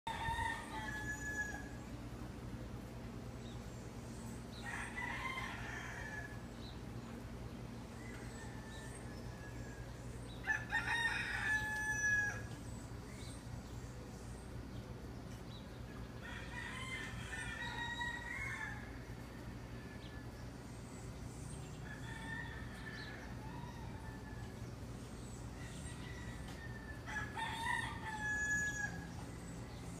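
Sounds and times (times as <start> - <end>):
rooster crowing: 0.1 - 1.9, 4.6 - 6.5, 8.0 - 12.6, 16.2 - 20.3, 21.8 - 24.7, 25.6 - 29.3
steady low hum: 0.1 - 11.4, 12.3 - 28.2, 28.9 - 30.0.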